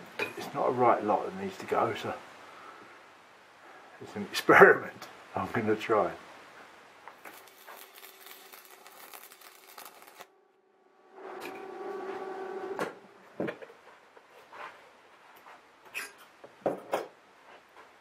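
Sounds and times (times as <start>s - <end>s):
welding arc crackling: 7.1s - 12.0s.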